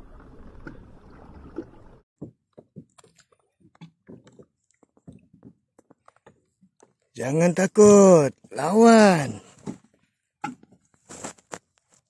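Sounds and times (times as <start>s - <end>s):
water slapping kayak hull: 0.0s - 7.1s.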